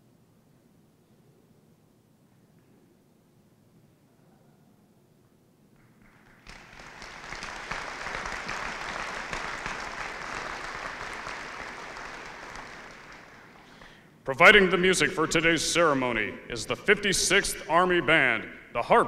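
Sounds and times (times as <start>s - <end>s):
audience applauding: 5.8s - 14.0s.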